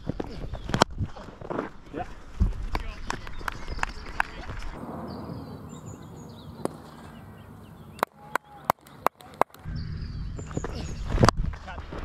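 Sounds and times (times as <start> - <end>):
outdoor background noise: 0.0 - 12.0
birds chirping faintly: 2.8 - 11.9.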